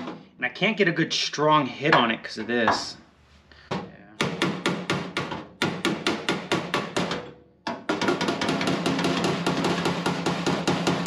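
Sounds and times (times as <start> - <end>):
hammer striking sheet metal: 7.9 - 11.0.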